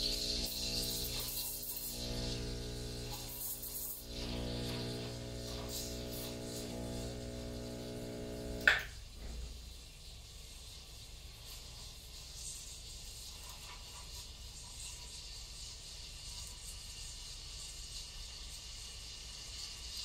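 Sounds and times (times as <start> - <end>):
espresso machine pump humming: 0.0 - 9.0.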